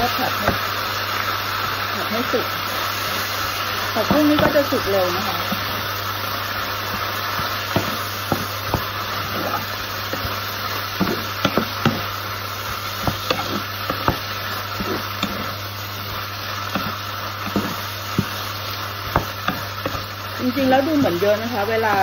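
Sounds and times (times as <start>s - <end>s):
greens sizzling in oiled pan: 0.0s - 22.0s
wooden spatula scraping pan: 6.8s - 22.0s.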